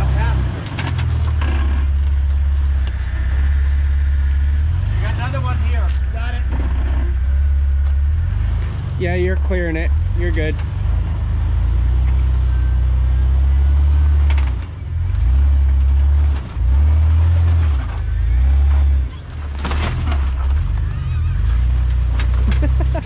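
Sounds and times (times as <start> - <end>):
off-road vehicle engine at low revs: 0.0 - 23.0
sharp clatter: 0.6 - 3.2.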